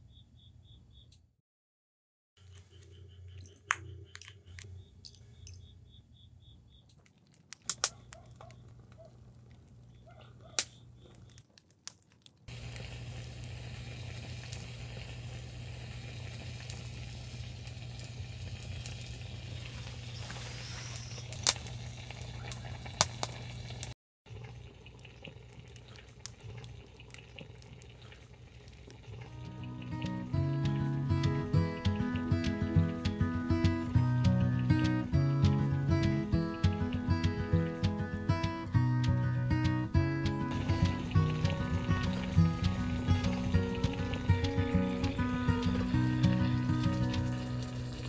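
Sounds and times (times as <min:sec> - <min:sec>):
sharp clicks: 0:06.8 - 0:09.1
stew bubbling in a pot: 0:07.2 - 0:33.1, 0:40.5 - 0:48.0.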